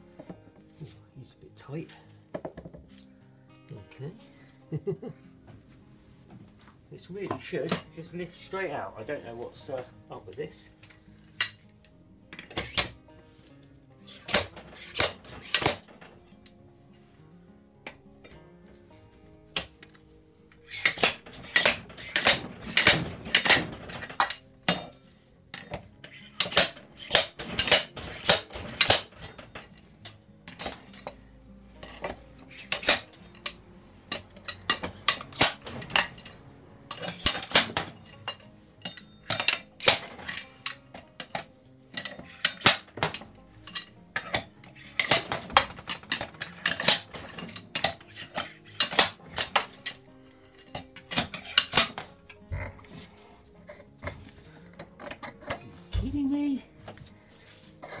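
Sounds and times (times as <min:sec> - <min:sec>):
hand tools clinking on metal: 0:07.1 - 0:13.0, 0:14.0 - 0:16.6, 0:17.8 - 0:18.5, 0:19.5 - 0:20.0, 0:20.6 - 0:53.1.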